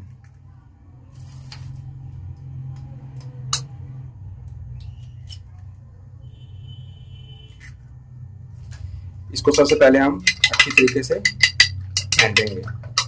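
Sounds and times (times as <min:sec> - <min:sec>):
eggshell tapping on dish: 0:09.6 - 0:13.0.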